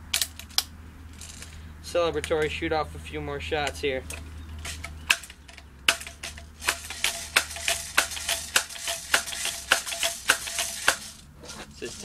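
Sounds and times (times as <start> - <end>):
air rifle clacks: 3.7 - 11.2.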